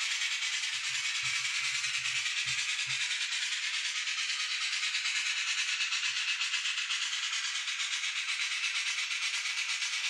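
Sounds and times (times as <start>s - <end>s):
model steam locomotive chuffing: 0.0s - 10.0s.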